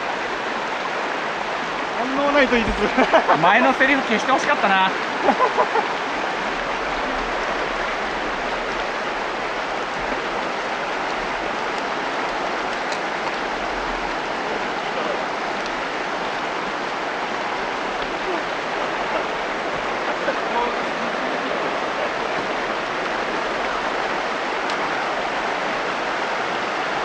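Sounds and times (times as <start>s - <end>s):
stream rushing over rocks: 0.0s - 27.0s.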